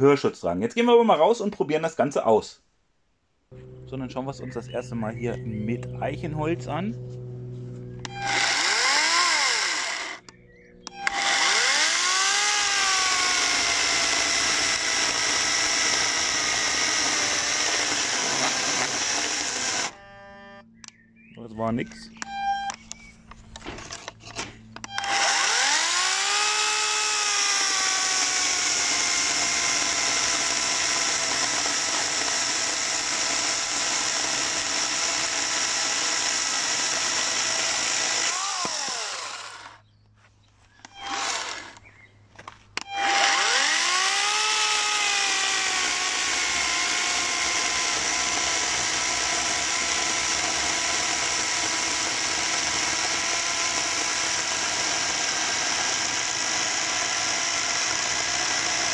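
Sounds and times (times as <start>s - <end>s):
cordless chainsaw sawing wood: 8.0s - 10.3s, 10.9s - 20.2s, 23.8s - 39.8s, 40.8s - 41.9s, 42.8s - 58.9s.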